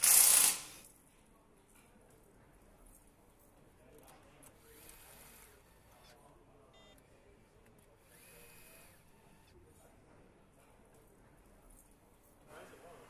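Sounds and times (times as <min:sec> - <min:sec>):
electric nutrunner whirring: 0:00.0 - 0:00.8, 0:04.5 - 0:06.0, 0:07.7 - 0:09.6.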